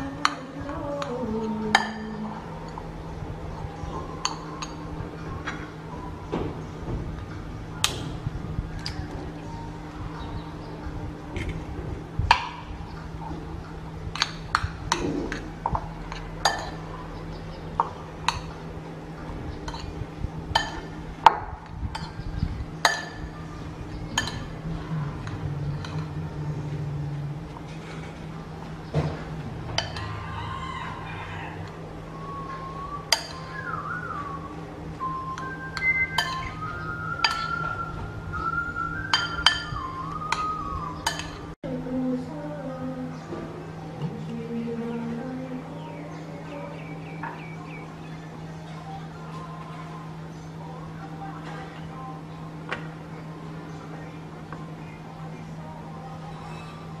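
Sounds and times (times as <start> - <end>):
metal spoon clinking ceramic bowl: 16.1 - 16.8, 24.2 - 24.6, 29.8 - 30.2, 35.8 - 36.5, 37.2 - 37.6, 39.1 - 39.7, 41.0 - 41.4.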